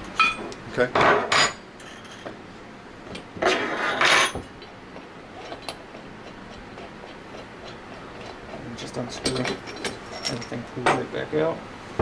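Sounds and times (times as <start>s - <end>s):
scraping knocks of metal parts: 5.3s - 11.1s.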